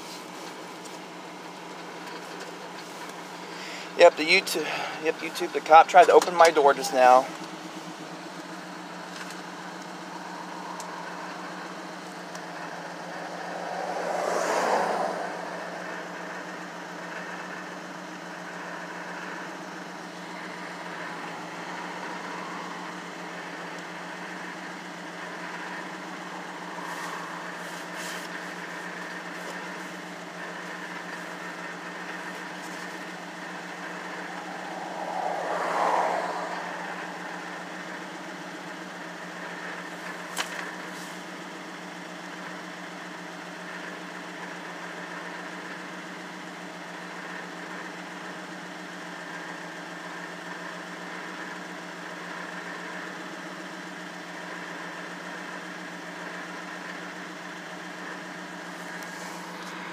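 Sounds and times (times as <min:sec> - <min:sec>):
truck engine idling: 0:00.0 - 0:14.2, 0:14.8 - 0:47.4
swell of noise: 0:09.5 - 0:17.2, 0:20.1 - 0:39.1.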